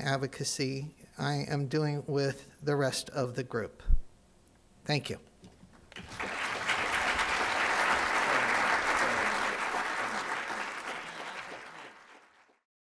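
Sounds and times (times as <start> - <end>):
audience applauding: 5.9 - 12.6.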